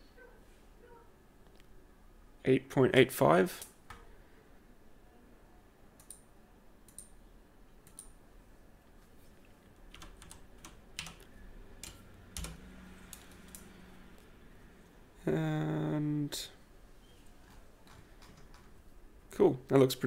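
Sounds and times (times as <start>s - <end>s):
keyboard and mouse clicks: 6.9s - 7.1s, 7.8s - 8.2s, 9.9s - 13.7s, 17.4s - 18.7s.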